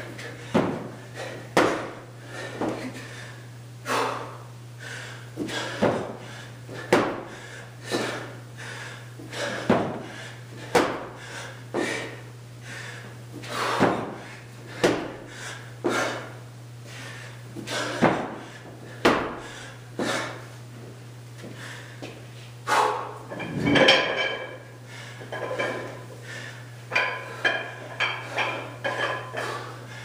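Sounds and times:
thuds of body on concrete floor: 0.5 - 0.9.

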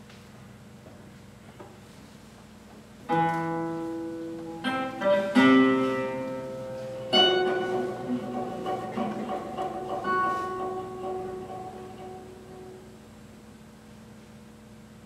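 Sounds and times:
plucked guitar chords: 3.0 - 13.0.

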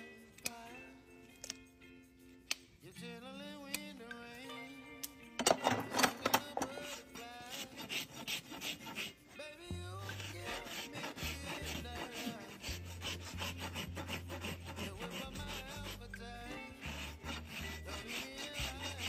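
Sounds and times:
rasp scraping hoof: 5.7 - 9.4, 10.0 - 19.0.

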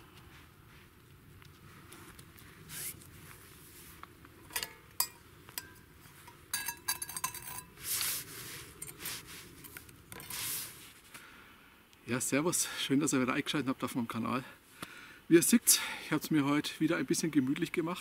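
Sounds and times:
metal pot and utensils clinking: 4.5 - 7.8
ringing metallic rattle: 4.5 - 7.8.

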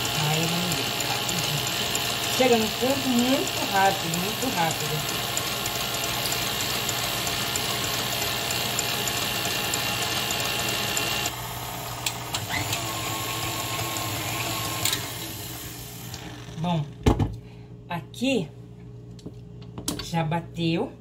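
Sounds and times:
mixer clicks: 0.0 - 11.4
stand mixer whirring: 0.0 - 16.6.

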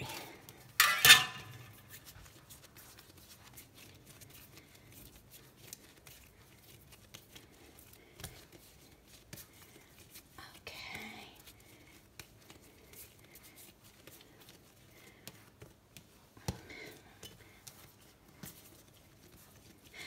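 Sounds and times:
hands tapping and rustling dough: 0.0 - 20.0
metal scraper scraping countertop: 0.8 - 1.8.

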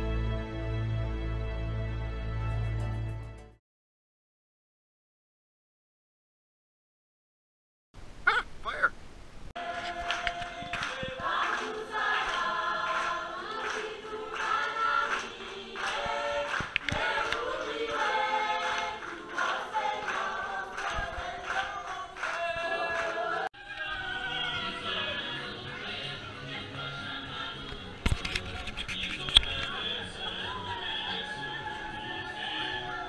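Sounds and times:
choir singing: 9.6 - 33.0.

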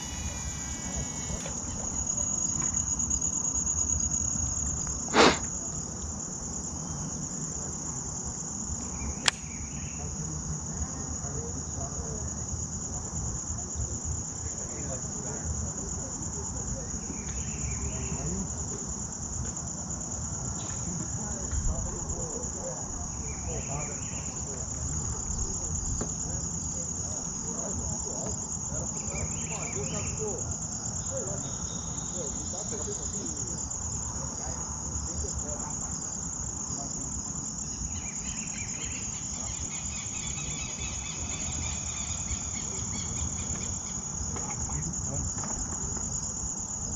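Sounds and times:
high-pitched insect chorus: 0.0 - 46.9
sharp click: 9.2 - 9.5.

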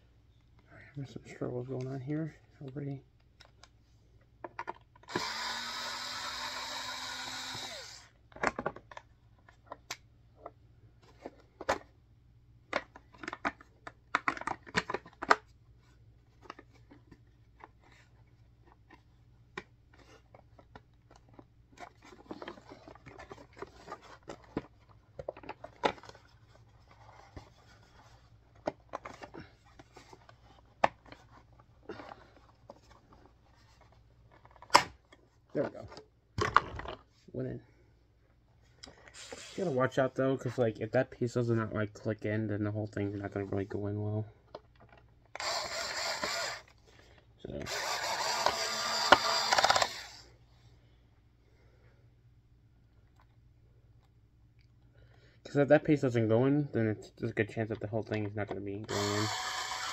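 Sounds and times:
plastic parts clicking and knocking: 4.4 - 5.3, 8.3 - 11.9, 12.7 - 15.5, 18.6 - 37.1.

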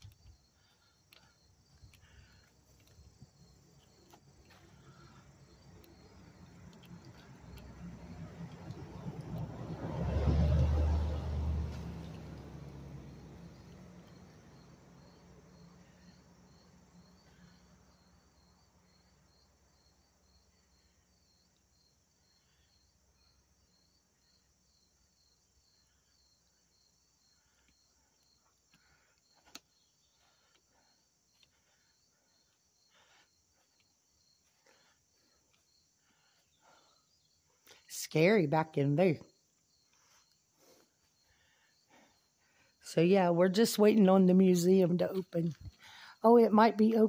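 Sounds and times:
insect chirping: 0.0 - 38.0, 39.2 - 47.0.

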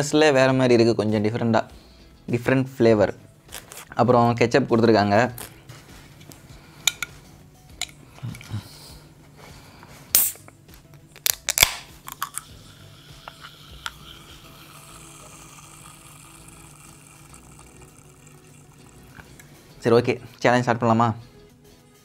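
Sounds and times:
can ring-pull clicks and snaps: 11.1 - 12.6.

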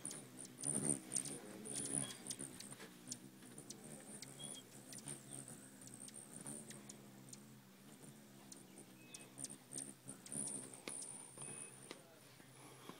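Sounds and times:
hummingbird wingbeats buzzing: 0.0 - 12.0
high-pitched bird chips: 4.2 - 6.8.

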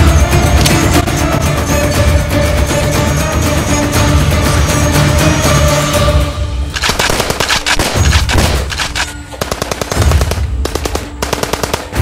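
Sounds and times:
rapid machine-gun fire: 6.8 - 12.0
thudding music beat: 6.8 - 12.0.

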